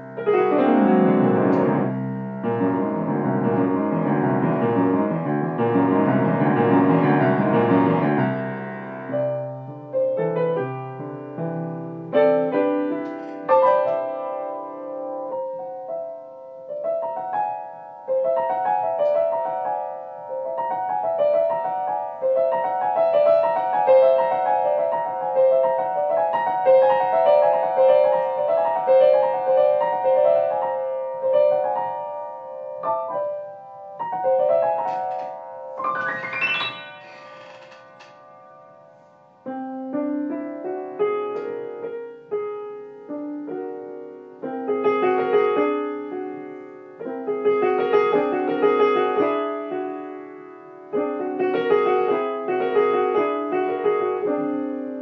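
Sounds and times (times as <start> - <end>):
solo piano: 0.0 - 55.0.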